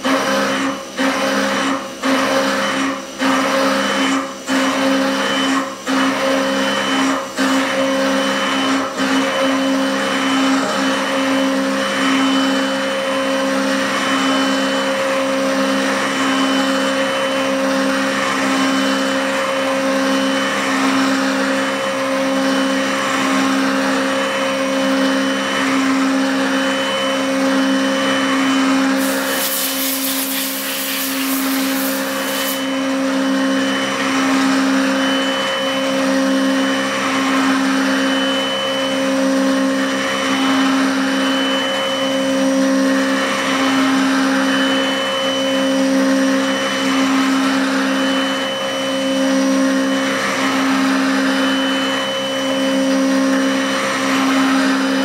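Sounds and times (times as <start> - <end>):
mill cutting metal hum: 0.0 - 55.0
coolant spray: 29.0 - 32.6.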